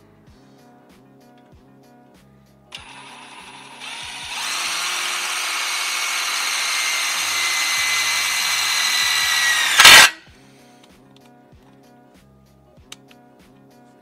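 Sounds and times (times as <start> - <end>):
cordless drill boring into steel: 2.7 - 10.2
loud grinding burst: 2.8 - 10.2.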